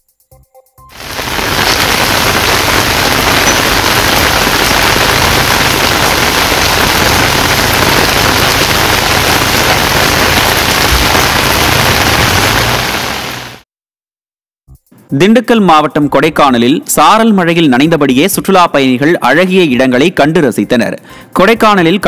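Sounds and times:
heavy rain hissing: 0:01.0 - 0:13.6.

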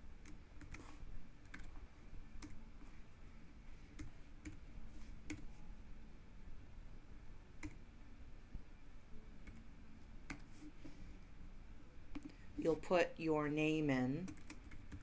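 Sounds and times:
computer keyboard keystrokes: 0:00.2 - 0:01.7, 0:07.6 - 0:07.8, 0:10.3 - 0:10.5, 0:14.3 - 0:15.0.

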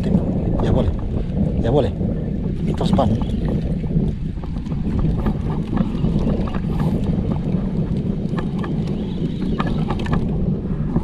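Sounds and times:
boat engine droning: 0:00.0 - 0:11.0
wind buffeting microphone: 0:00.0 - 0:11.0.

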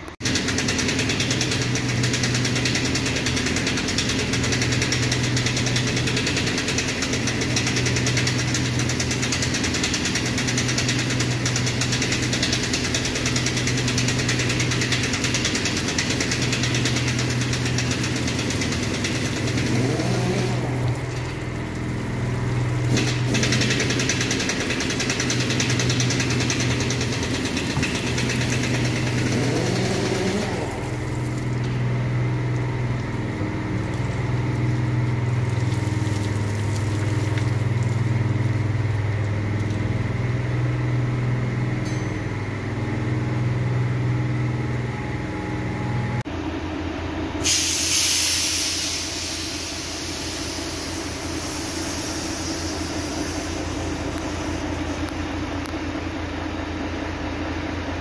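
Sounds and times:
low motor hum: 0:00.0 - 0:47.1
hose water hissing and splashing: 0:33.0 - 0:38.1.

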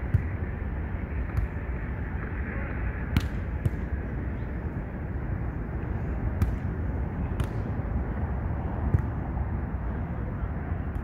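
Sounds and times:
volleyball being hit: 0:03.1 - 0:03.9, 0:07.3 - 0:07.7.

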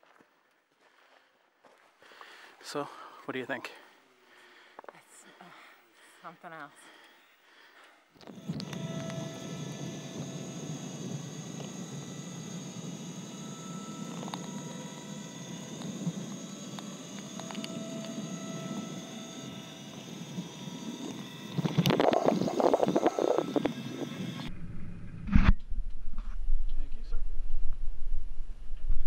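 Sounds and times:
cable lift drive whining: 0:08.2 - 0:24.5.

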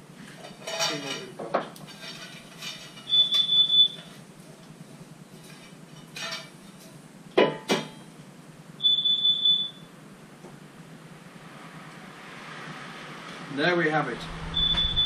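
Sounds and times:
carbon monoxide alarm beeping: 0:03.0 - 0:04.2, 0:08.8 - 0:10.0, 0:14.5 - 0:15.0.

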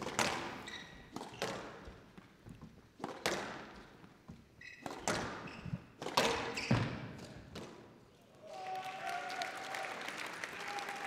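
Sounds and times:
squash ball hitting rackets and walls: 0:00.0 - 0:08.0
shoe squeak on court floor: 0:00.2 - 0:02.0, 0:04.5 - 0:07.4.

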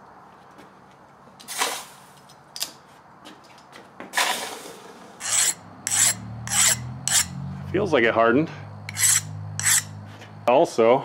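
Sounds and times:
file rasping across steel: 0:05.2 - 0:07.4, 0:08.9 - 0:10.0.

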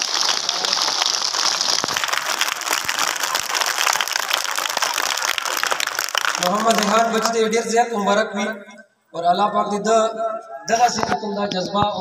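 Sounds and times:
children clapping: 0:00.0 - 0:07.6.

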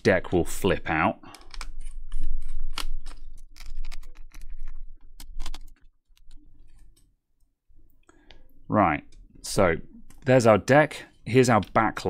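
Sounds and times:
plastic keyboard keys clattering: 0:01.4 - 0:06.4.

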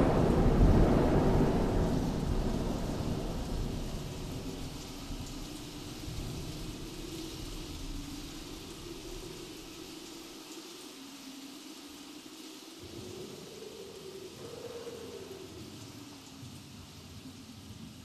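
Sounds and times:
thunder rumbling: 0:00.0 - 0:09.9
rain hiss: 0:00.0 - 0:18.0.

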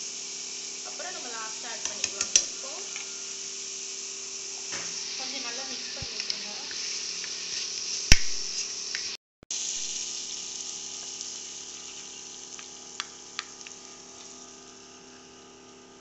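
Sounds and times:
vegetables sizzling in oil: 0:00.0 - 0:16.0
spatula clicks: 0:01.8 - 0:02.5
sharp knock: 0:08.1 - 0:08.5.

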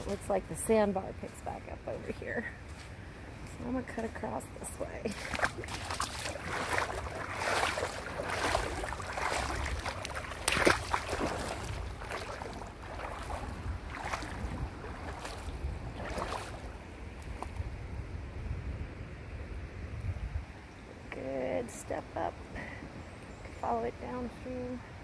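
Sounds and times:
footsteps wading through water: 0:00.0 - 0:18.0.

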